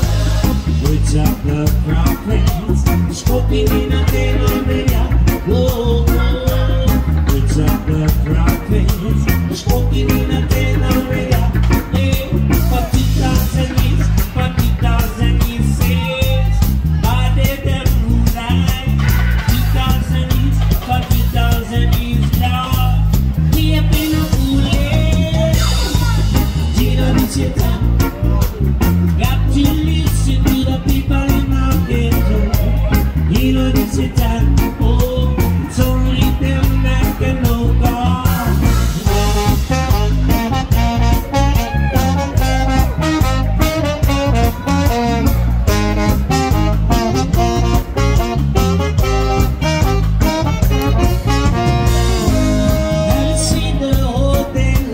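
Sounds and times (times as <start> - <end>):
bass guitar: 0.0 - 54.9
drums: 0.0 - 54.9
electric guitar: 0.0 - 54.9
lead singer singing: 0.0 - 54.9
trombone: 35.6 - 54.9
saxophone: 38.0 - 54.9.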